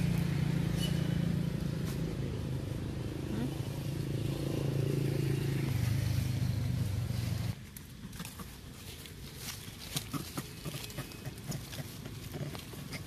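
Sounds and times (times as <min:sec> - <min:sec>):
vehicle engine running: 0:00.0 - 0:07.6.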